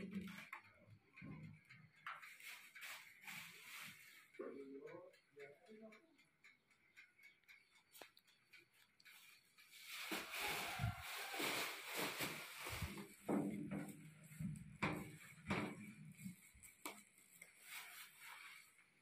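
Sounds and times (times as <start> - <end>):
rustling: 9.0 - 19.0.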